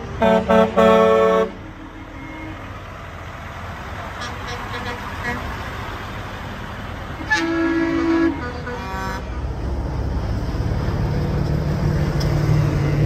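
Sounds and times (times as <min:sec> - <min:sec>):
diesel truck engine rumble: 0:00.0 - 0:13.0
truck air horn blast: 0:00.2 - 0:02.7, 0:04.2 - 0:05.6, 0:07.2 - 0:09.6.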